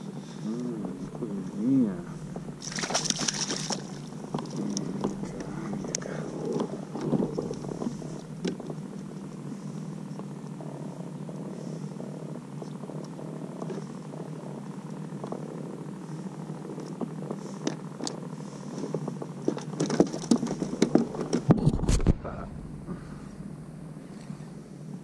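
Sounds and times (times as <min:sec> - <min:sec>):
low purring hum: 0:00.0 - 0:25.0
water splash: 0:02.6 - 0:04.1.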